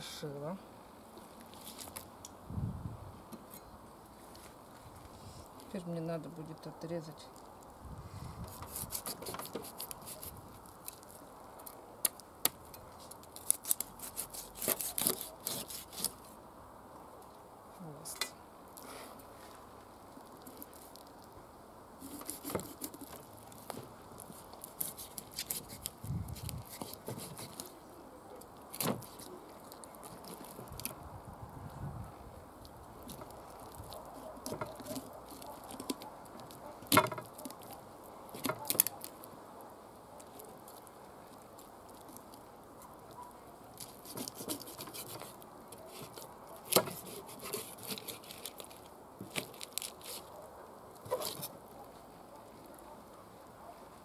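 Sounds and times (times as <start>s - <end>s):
knife crunching through fish bone: 8.5s - 11.2s, 12.0s - 16.2s, 22.0s - 27.7s, 43.8s - 50.4s.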